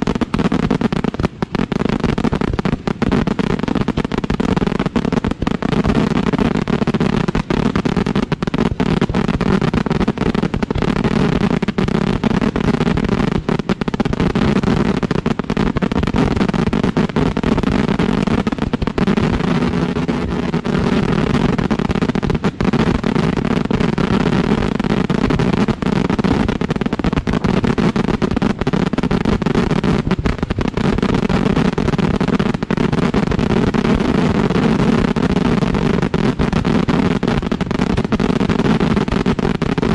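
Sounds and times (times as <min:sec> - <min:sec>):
fireworks launching from mortars: 0:00.0 - 0:39.9.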